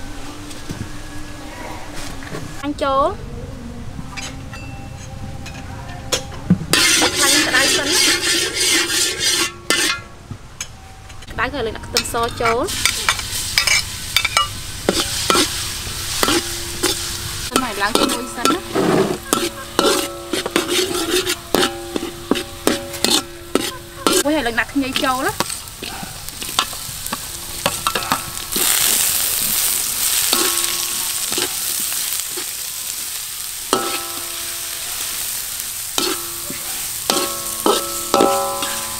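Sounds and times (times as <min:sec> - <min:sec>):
garlic sizzling in hot oil: 0:06.7 - 0:09.9, 0:12.4 - 0:38.9
metal spatula scraping wok: 0:06.7 - 0:10.1, 0:12.0 - 0:38.9.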